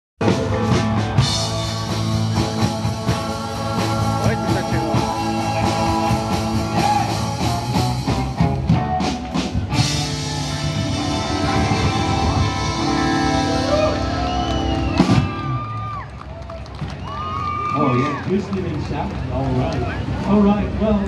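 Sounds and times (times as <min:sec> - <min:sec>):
rock music: 0:00.2 - 0:16.0.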